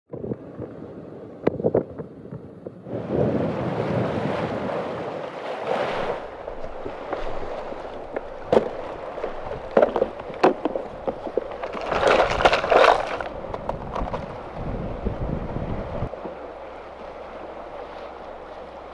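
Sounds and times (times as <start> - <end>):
wind rushing over microphone: 0.1 - 16.2
gear clicks and knocks: 8.1 - 14.3
plastic box rattling open: 11.6 - 14.2.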